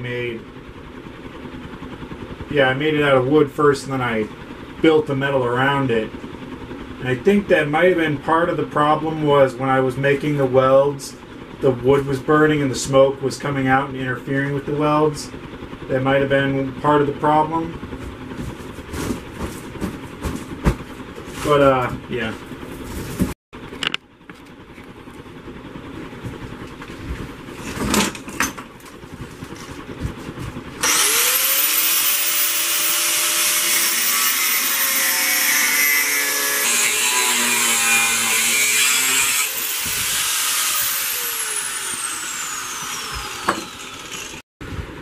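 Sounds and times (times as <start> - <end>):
angle grinder grinding metal: 30.8 - 44.4.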